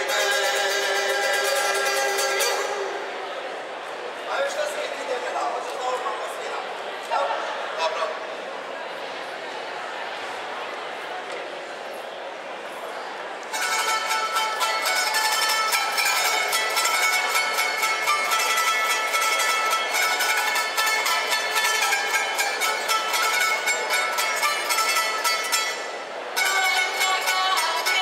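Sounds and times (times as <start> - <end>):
plucked string instrument folk tune: 0.0 - 3.9, 13.4 - 28.0.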